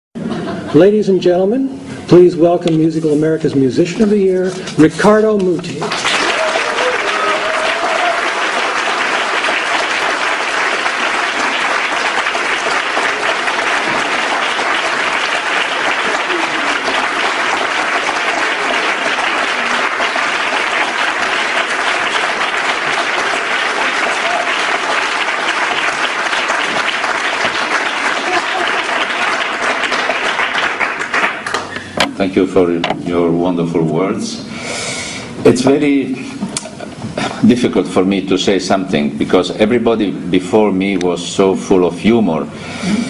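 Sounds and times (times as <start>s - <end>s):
audience applauding: 5.8s - 32.1s.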